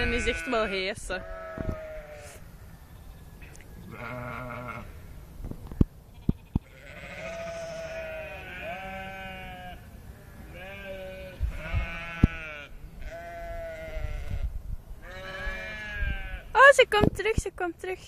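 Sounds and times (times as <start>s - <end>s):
sheep bleating: 0.0s - 2.4s, 3.9s - 5.0s, 6.1s - 14.4s, 15.0s - 16.5s.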